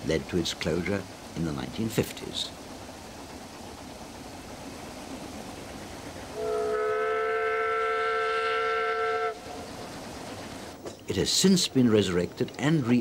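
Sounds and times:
steam locomotive whistle: 6.3 - 9.4.

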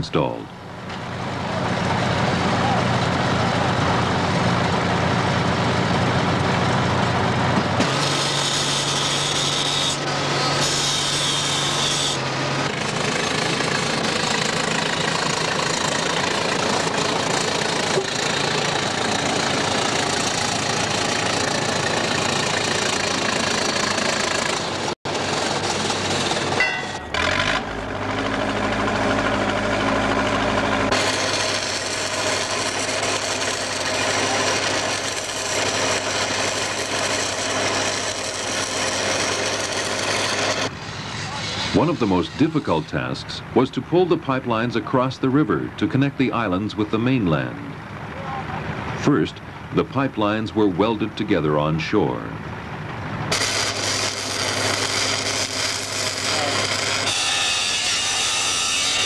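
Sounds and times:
machinery engines running: 0.0 - 59.0.

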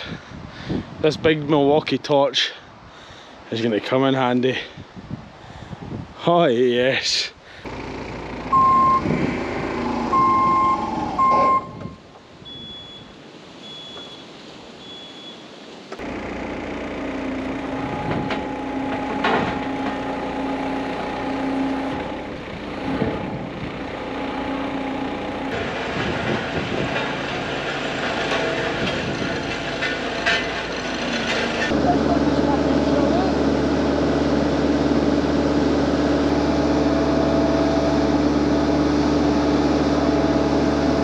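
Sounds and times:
heavy diesel engine running: 7.6 - 11.6, 16.0 - 41.0
loud short electronic beeps: 8.5 - 9.1, 10.1 - 15.4.

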